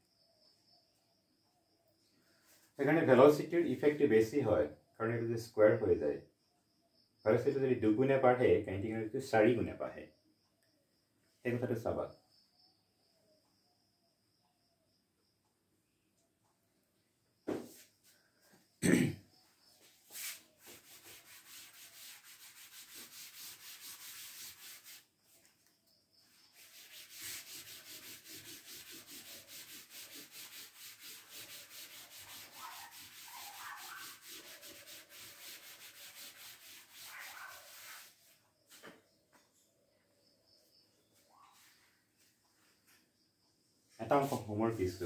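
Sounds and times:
thump: 17.4s - 17.8s
eraser rubbing blackboard: 20.1s - 25.4s, 26.3s - 38.8s.

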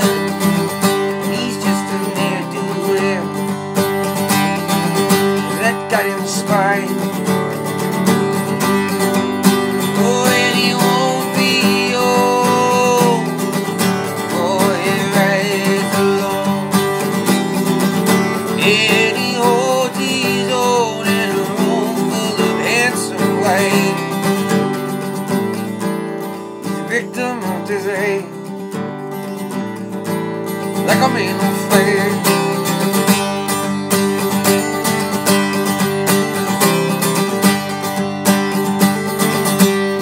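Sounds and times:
acoustic guitar strumming: 0.0s - 40.0s
man singing held notes: 9.9s - 13.4s.

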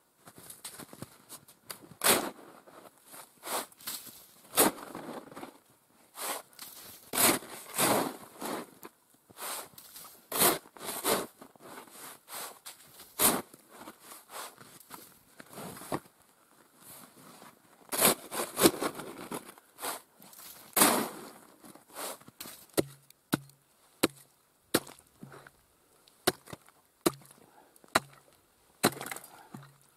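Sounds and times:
snow shovel scraping snow: 2.0s - 5.5s, 6.1s - 8.8s, 9.4s - 14.8s, 16.9s - 22.6s.

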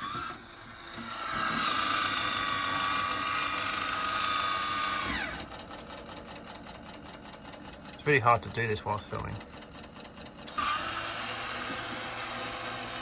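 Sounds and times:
fan motor whine: 0.0s - 13.0s.

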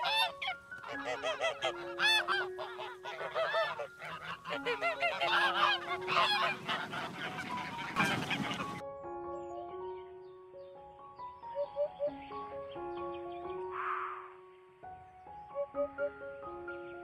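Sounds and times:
goose honking: 0.0s - 8.8s.

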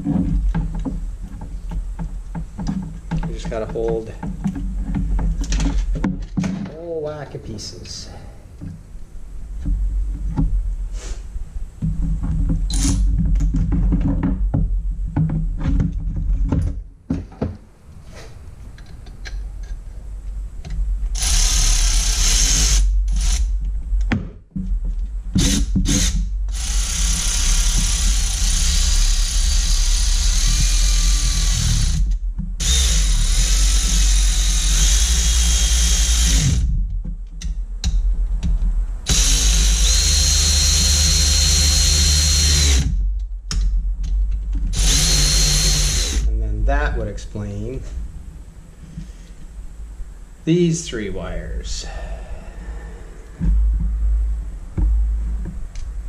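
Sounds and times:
cordless drill running: 21.2s - 23.5s, 25.4s - 36.6s, 39.1s - 42.9s, 44.7s - 46.2s.

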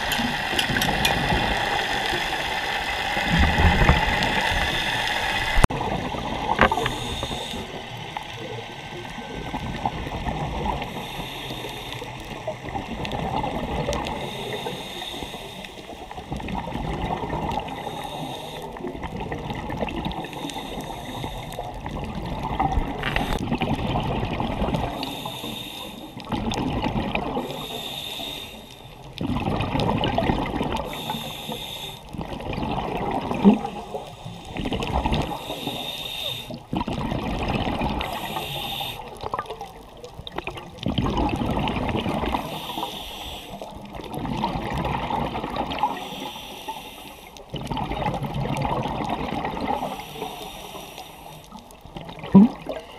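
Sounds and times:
water sloshing underwater: 0.0s - 52.9s
short hissing bursts: 27.5s - 28.8s, 30.9s - 32.1s, 35.3s - 36.6s, 38.0s - 39.1s, 42.4s - 43.6s, 49.8s - 51.4s.

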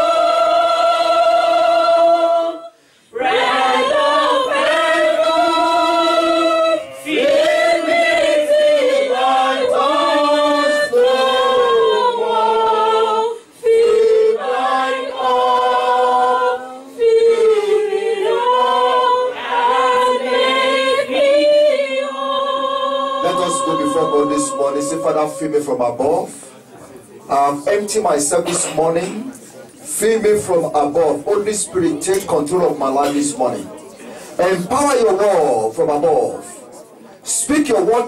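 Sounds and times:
man singing unaccompanied: 23.1s - 26.3s.

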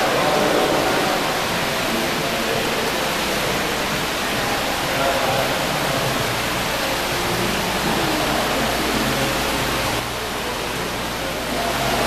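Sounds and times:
fountain water splashing into pool: 0.0s - 12.0s.

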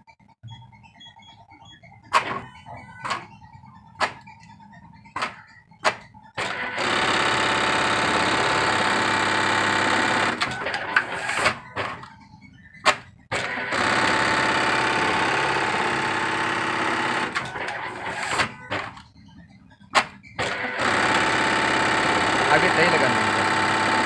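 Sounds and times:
sharp mechanical clicks and knocks: 0.5s - 7.6s, 10.2s - 19.2s, 19.8s - 22.0s
sewing machine running: 6.4s - 12.1s, 13.3s - 19.0s, 20.4s - 24.0s.

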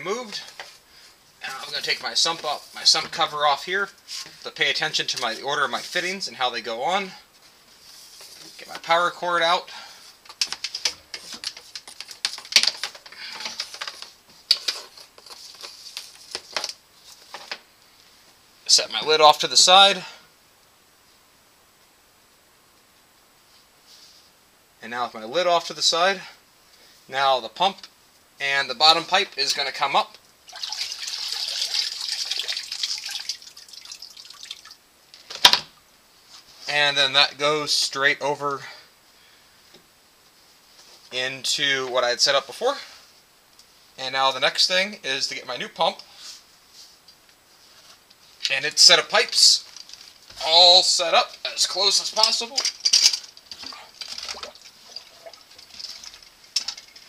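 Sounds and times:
water streaming and dripping: 30.4s - 34.8s, 53.6s - 57.0s.

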